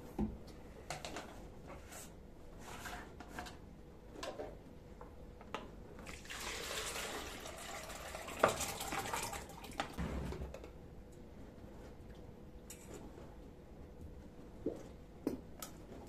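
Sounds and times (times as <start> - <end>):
liquid pouring into bucket: 6.0 - 10.0.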